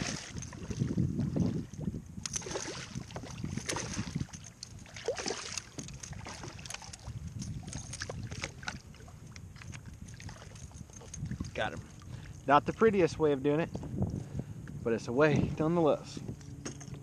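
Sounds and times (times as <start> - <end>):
landing net pushed into water: 2.3 - 4.3, 4.9 - 6.9
fish splashing at water surface: 2.3 - 8.8.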